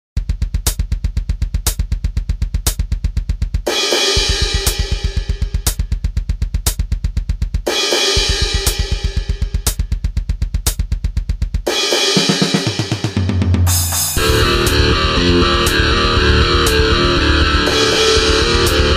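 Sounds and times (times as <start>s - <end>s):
rapid double-bass kick drum: 0.2s - 11.7s, 13.1s - 18.9s
cymbal hits: 3.7s - 5.8s, 7.7s - 9.8s, 11.7s - 16.8s
cymbal washes: 11.7s - 15.0s
distorted guitars: 13.7s - 18.9s
low bass tone: 14.2s - 18.9s.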